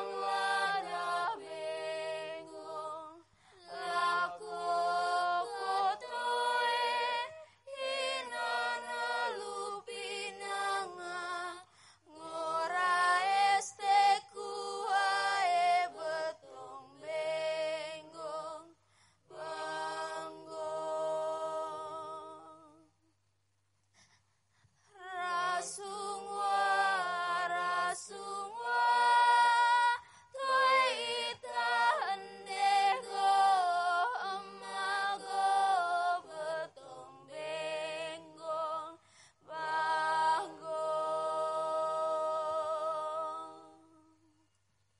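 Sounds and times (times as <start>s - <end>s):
person singing chant-like melody: 0.0s - 3.0s, 3.7s - 7.4s.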